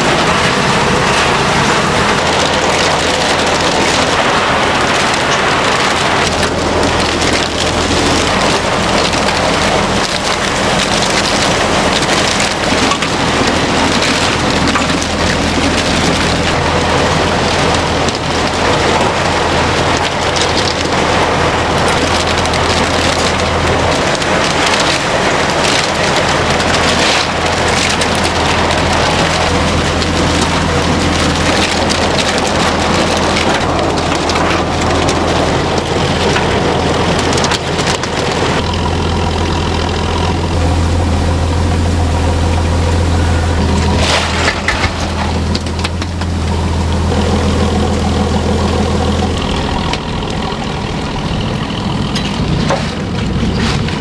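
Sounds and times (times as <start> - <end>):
sharp clatters: 0.0 - 40.7
heavy engine humming: 0.0 - 54.0.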